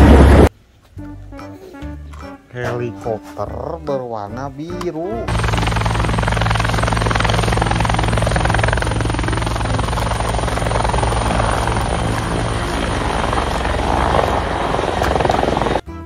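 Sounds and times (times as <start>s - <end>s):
helicopter rotor blades chopping: 5.3s - 15.8s.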